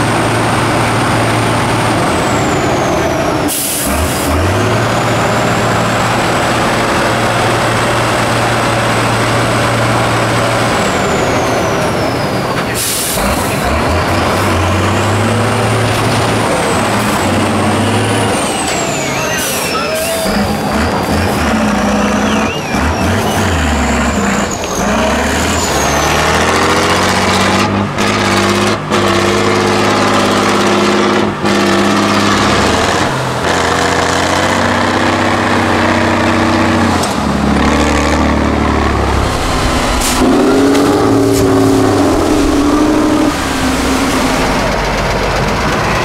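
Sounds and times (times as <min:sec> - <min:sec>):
diesel engine working hard: 0:00.0 - 0:46.0.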